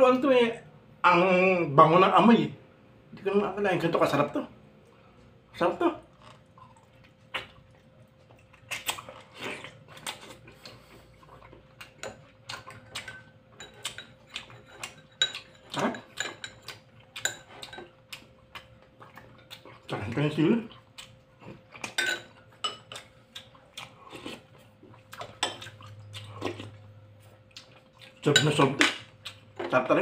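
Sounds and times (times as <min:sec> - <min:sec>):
man chewing food: 0:04.8 - 0:29.7
metal spoon clinking on dish: 0:12.9 - 0:17.9, 0:22.0 - 0:23.0.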